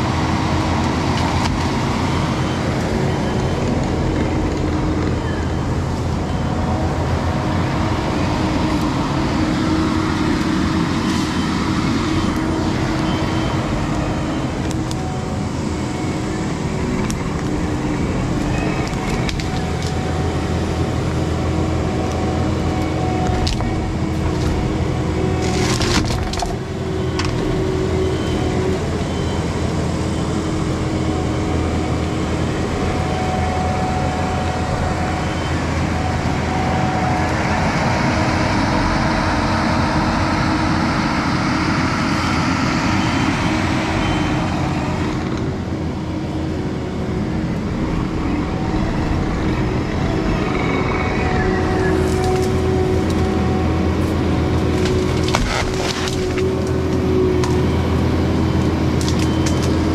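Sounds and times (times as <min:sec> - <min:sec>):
diesel engine running: 0:00.0 - 0:59.9
branches and leaves rustling: 0:16.8 - 0:28.5, 0:50.2 - 0:59.9
wood cracking and splintering: 0:18.4 - 0:20.0, 0:23.2 - 0:24.7, 0:25.4 - 0:27.6, 0:54.5 - 0:57.6, 0:58.9 - 0:59.9.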